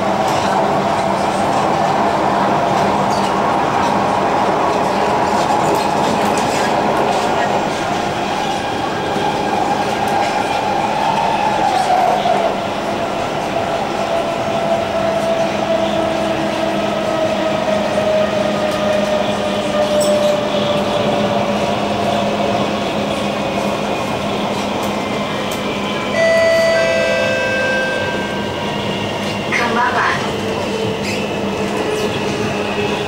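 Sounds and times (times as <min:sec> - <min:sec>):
chime inside train: 0:26.1 - 0:28.8.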